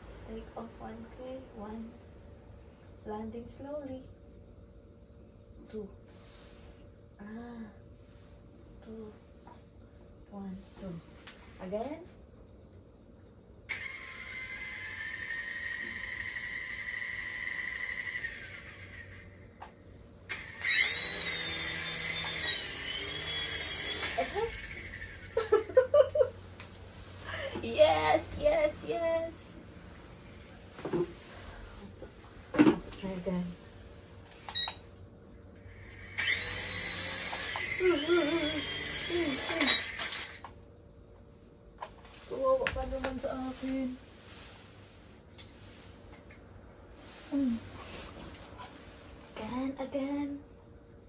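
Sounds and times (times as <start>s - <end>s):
toy helicopter rotor motors whining: 13.7s - 19.5s, 20.3s - 25.6s, 35.6s - 40.5s.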